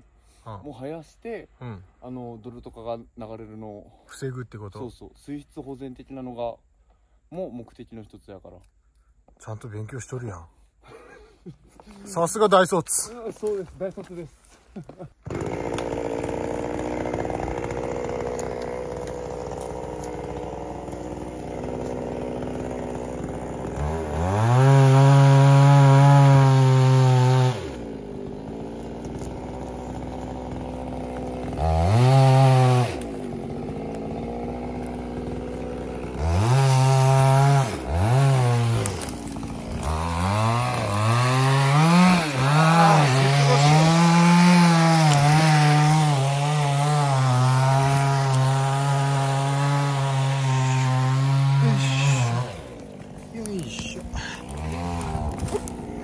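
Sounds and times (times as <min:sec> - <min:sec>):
chainsaw revving and cutting wood: 0:14.8 - 0:56.0.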